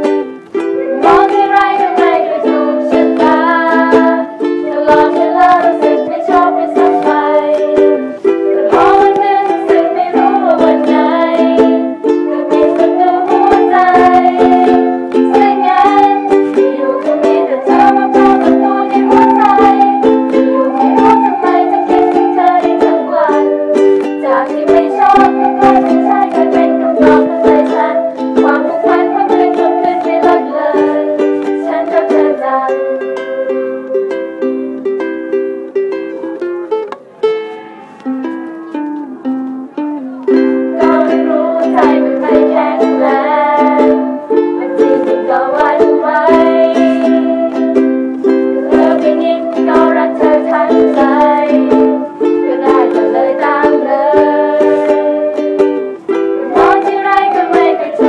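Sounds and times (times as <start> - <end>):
ukuleles strumming chords: 0.0 - 58.0
melody line: 0.6 - 58.0.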